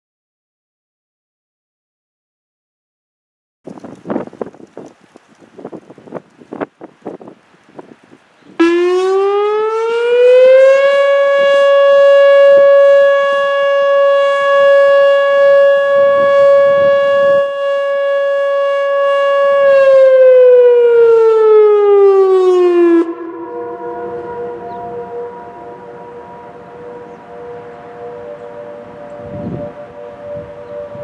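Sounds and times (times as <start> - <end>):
distant sirens holding steady tones: 3.7 - 31.0
electronic warning siren: 8.6 - 31.0.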